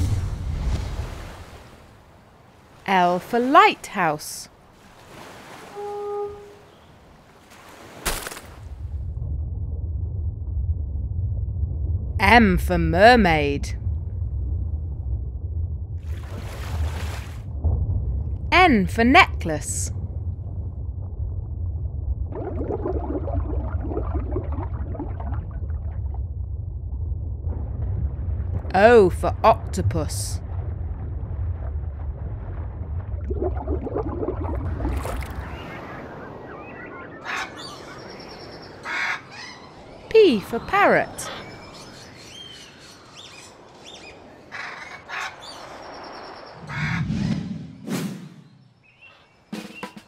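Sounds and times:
steady low rumble: 8.6s - 35.6s
whistled bird chirps: 48.4s - 50.0s.

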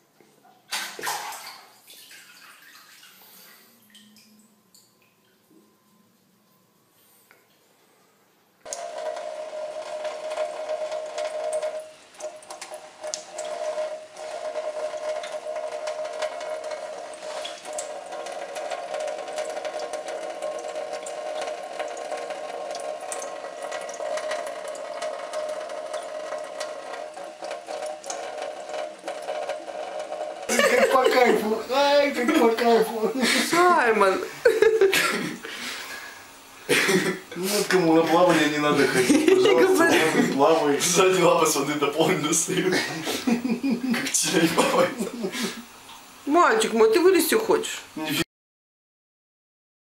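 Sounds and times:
faucet running into steel sink: 8.7s - 35.7s, 37.5s - 47.8s
steady hum: 18.9s - 47.2s.

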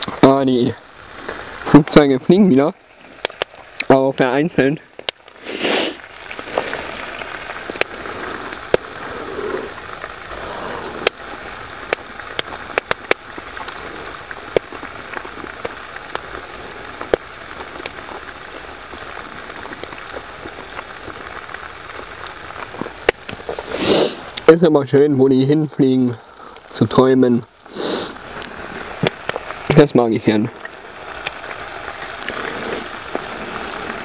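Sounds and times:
meat sizzling in a pan: 5.1s - 24.5s, 30.6s - 34.0s.

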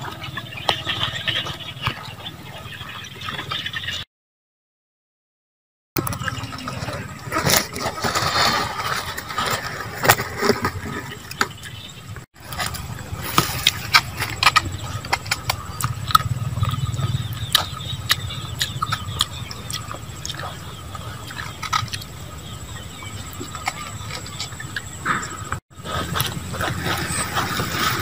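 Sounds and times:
low steady rumble: 12.4s - 24.5s.

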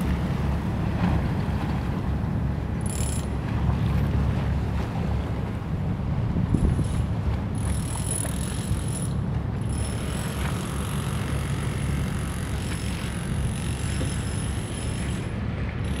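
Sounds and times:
boat engine rumble: 0.0s - 16.0s
wind on microphone: 6.2s - 7.1s.

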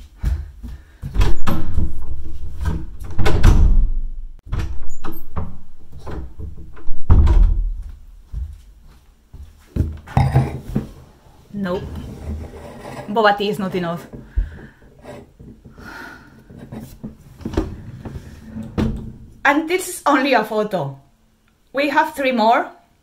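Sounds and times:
door thudding shut: 1.2s - 7.8s.

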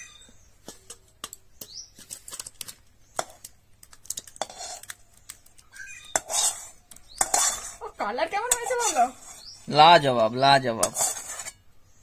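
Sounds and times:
metal spatula scraping a wok: 4.3s - 5.0s, 5.9s - 11.7s.

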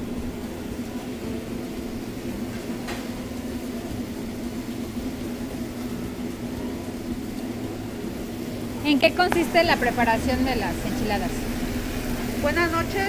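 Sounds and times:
machine hum: 0.0s - 13.0s.

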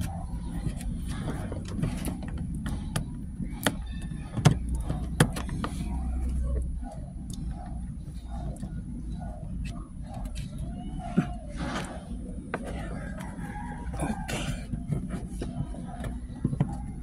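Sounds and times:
low steady rumble: 0.0s - 17.0s.

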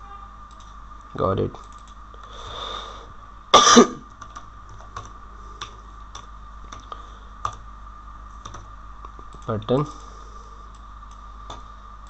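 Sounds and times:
computer keyboard keystrokes: 0.5s - 0.8s, 1.5s - 2.0s, 4.2s - 7.6s, 8.4s - 9.6s
man clearing throat: 3.6s - 4.0s.

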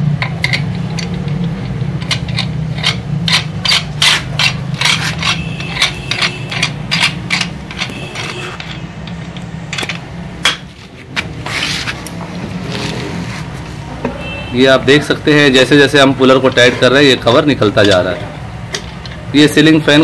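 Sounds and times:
metal clicks and scrapes: 0.0s - 13.7s.

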